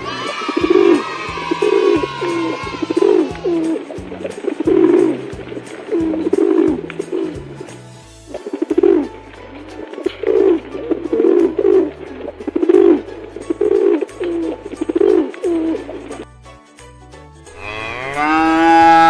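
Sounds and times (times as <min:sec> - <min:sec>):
background music with bass line: 0:00.0 - 0:19.0
pigeons cooing: 0:00.2 - 0:07.5, 0:08.4 - 0:09.1, 0:09.8 - 0:16.2.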